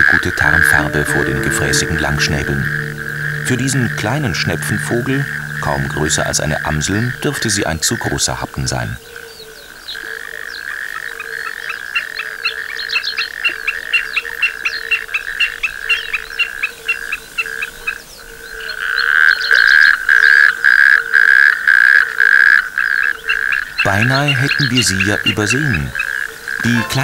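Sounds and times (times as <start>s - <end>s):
low broken frog call: 0.6s - 7.6s.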